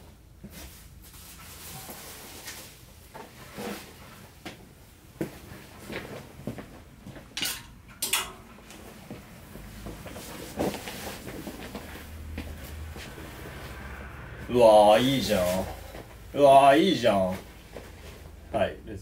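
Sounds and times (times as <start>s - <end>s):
clothes rustling: 5.2s - 13.8s
clothes brushing: 9.5s - 13.8s, 14.9s - 16.3s.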